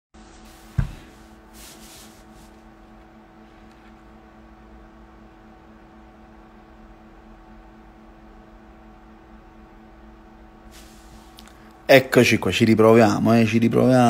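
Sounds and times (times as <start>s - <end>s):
room noise hum and hiss: 0.2s - 14.0s
soft rustles: 0.4s - 2.7s.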